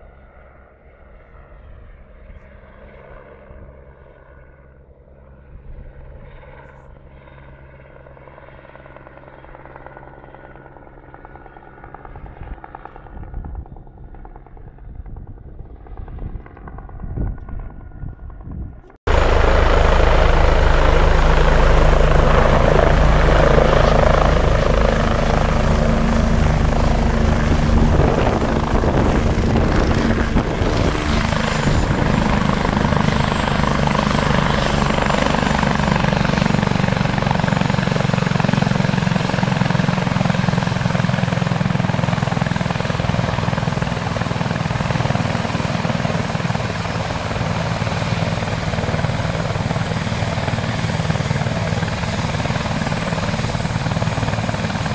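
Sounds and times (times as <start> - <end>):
helicopter rotor and turbine noise: 0.0 - 54.9
high turbine whine: 19.1 - 54.9.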